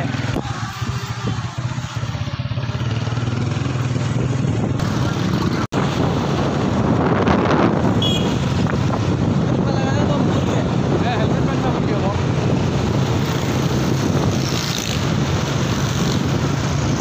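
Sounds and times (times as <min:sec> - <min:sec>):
motorcycle engine running: 0:00.0 - 0:09.5
road noise: 0:00.0 - 0:17.0.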